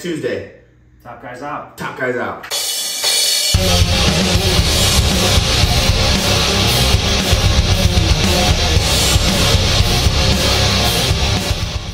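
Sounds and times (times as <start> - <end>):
heavy rock music with electric guitar: 3.5 - 11.9.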